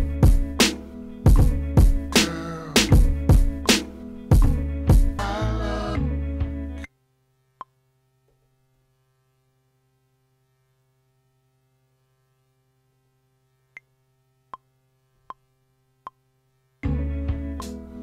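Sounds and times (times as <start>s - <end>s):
low electrical hum: 5.4s - 18.0s.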